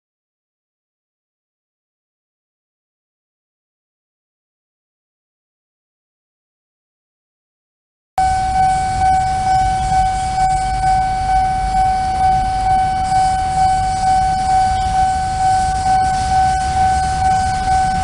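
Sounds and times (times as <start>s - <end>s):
level crossing warning alarm: 8.2s - 18.0s.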